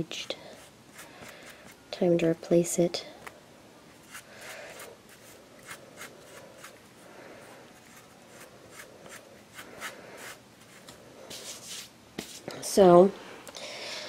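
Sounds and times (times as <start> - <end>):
soft rubbing: 3.9 - 12.5.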